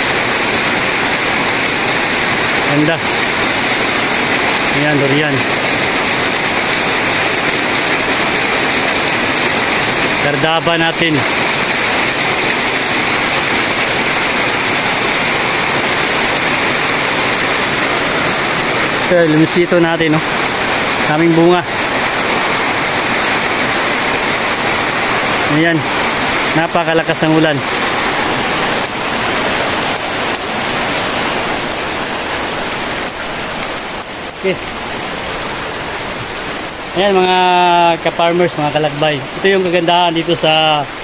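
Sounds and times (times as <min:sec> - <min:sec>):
heavy rain pouring: 0:00.0 - 0:41.0.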